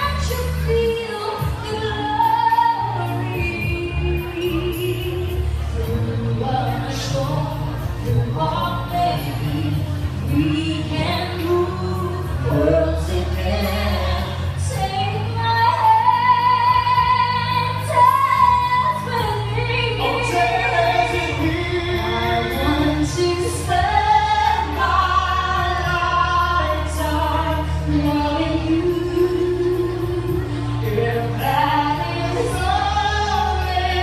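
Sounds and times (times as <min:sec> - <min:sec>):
woman singing a love ballad: 0:00.0 - 0:34.0.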